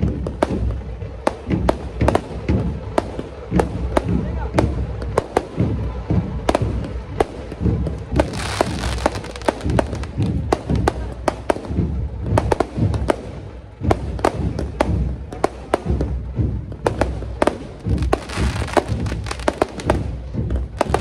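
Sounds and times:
firecrackers banging: 0:00.0 - 0:21.0
music with heavy bass beat: 0:00.0 - 0:21.0
rushing hiss: 0:08.2 - 0:10.4.

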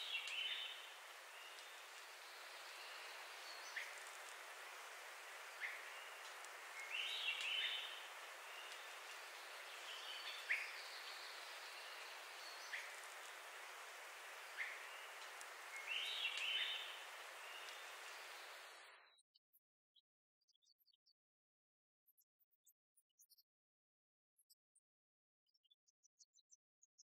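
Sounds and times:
soft steady hiss: 0:00.0 - 0:19.0
warbled bird song: 0:00.0 - 0:19.2.

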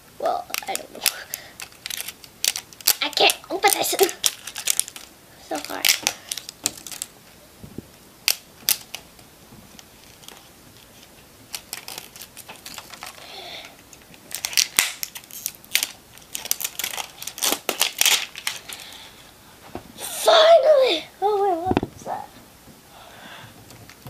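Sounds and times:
plastic packaging crackling: 0:00.3 - 0:07.2, 0:08.2 - 0:19.0.

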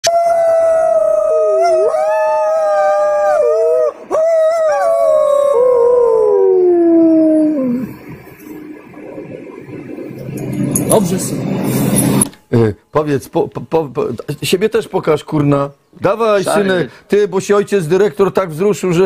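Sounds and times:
dog howling: 0:00.2 - 0:08.0.

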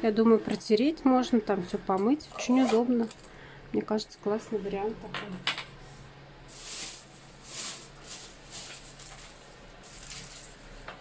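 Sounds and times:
rustling and handling noise: 0:05.8 - 0:11.0.

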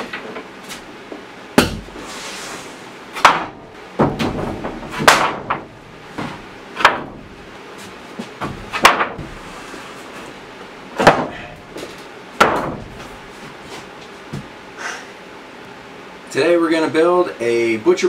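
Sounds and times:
wooden boards knocking on bench: 0:03.2 - 0:07.2, 0:08.4 - 0:09.4, 0:11.0 - 0:13.1.

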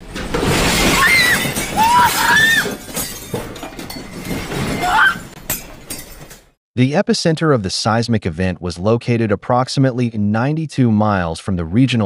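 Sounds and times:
dishes and glass crashing and rattling: 0:00.0 - 0:06.6.

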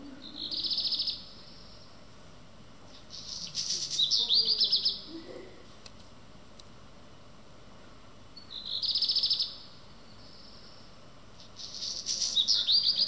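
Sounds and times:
bird singing whistled rattling song: 0:00.2 - 0:02.0, 0:02.9 - 0:05.0, 0:08.4 - 0:13.0.

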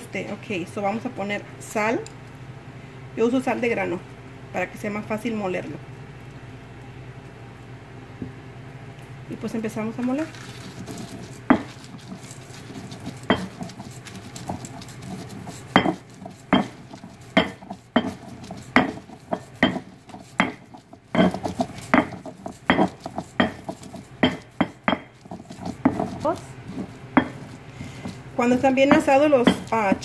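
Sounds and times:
stone pestle knocking in mortar: 0:10.9 - 0:30.0.

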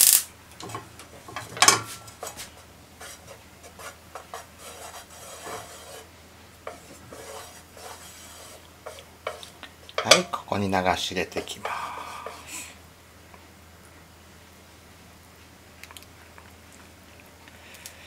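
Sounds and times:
chopsticks scraping frying pan: 0:00.6 - 0:10.4.

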